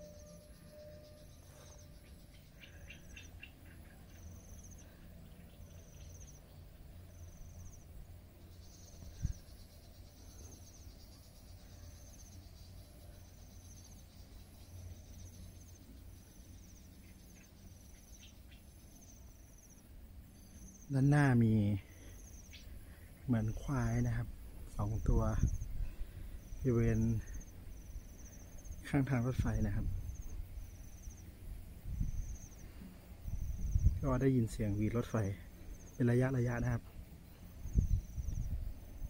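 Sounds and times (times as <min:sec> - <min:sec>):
bird chirps: 0:00.0 - 0:21.0, 0:21.9 - 0:24.2
high insect whine: 0:00.0 - 0:39.0
insect trills: 0:00.0 - 0:39.0.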